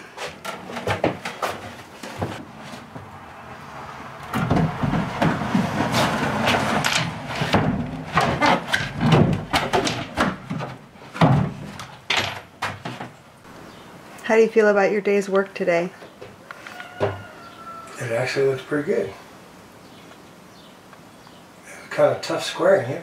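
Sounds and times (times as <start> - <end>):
cabinet knocks and bumps: 0.4 - 2.5, 4.3 - 13.2
wood scraping against wood: 4.3 - 12.0.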